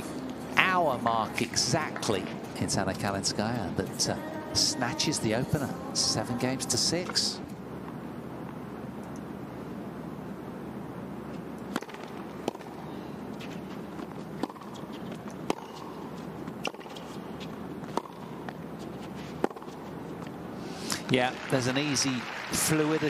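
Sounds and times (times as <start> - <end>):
arena hum: 0.0 - 23.0
tennis ball pops off racket: 11.7 - 12.7.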